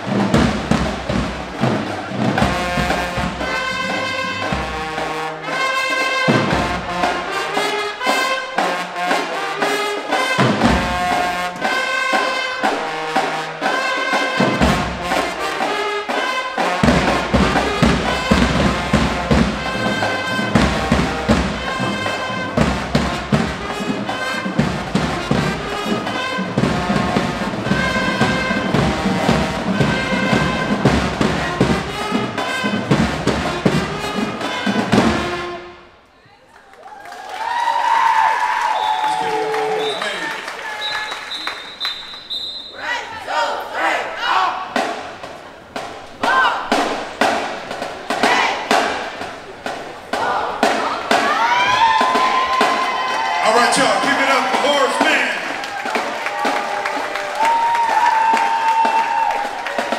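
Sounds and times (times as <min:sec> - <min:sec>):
snare and bass drums: 0:00.0 - 0:35.8, 0:44.6 - 0:59.9
brass horn phrases: 0:00.0 - 0:36.0, 0:50.1 - 0:59.9
marching band playing: 0:00.0 - 0:36.2, 0:37.3 - 0:59.9.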